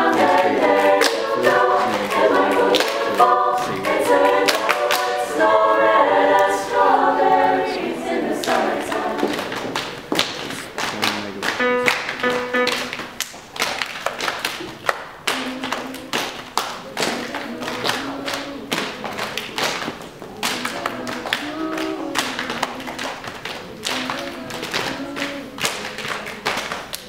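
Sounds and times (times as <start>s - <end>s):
hands clapping: 0.0s - 5.5s, 8.4s - 27.0s
choir singing short notes: 0.0s - 9.5s, 10.5s - 13.0s.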